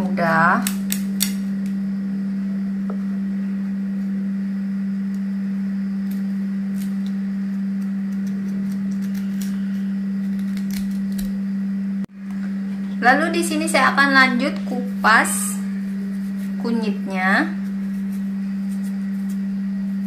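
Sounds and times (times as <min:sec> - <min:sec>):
steady low hum: 0:00.0 - 0:20.0
knife cutting clicks: 0:00.6 - 0:01.8, 0:06.0 - 0:11.4.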